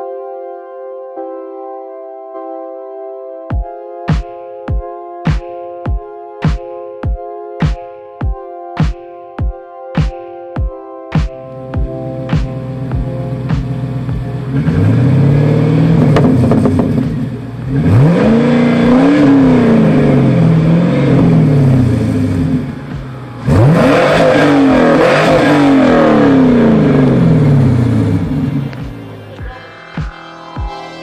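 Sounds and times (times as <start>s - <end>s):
car engine revving: 11.5s - 29.8s.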